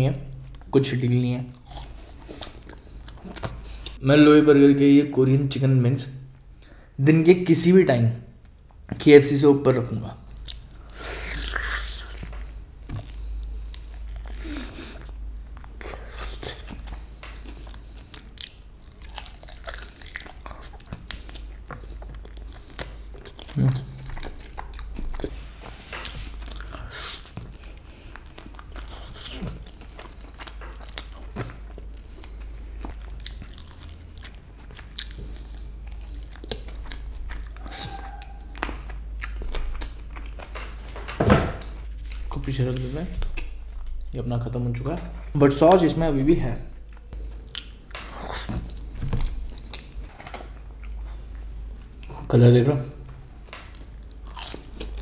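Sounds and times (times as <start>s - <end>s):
steady low hum: 0.0s - 55.0s
chewing crunchy chicken: 1.5s - 4.0s, 10.3s - 40.9s, 46.9s - 52.3s, 53.1s - 55.0s.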